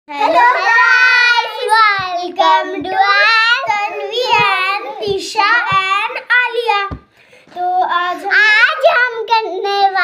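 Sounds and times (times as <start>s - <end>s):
young children singing: 0.2s - 7.0s.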